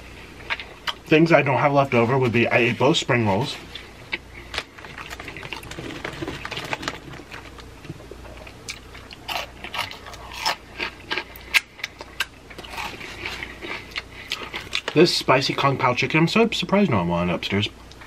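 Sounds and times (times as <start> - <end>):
snacks crunched and chewed: 0.4 - 1.1, 3.6 - 15.0.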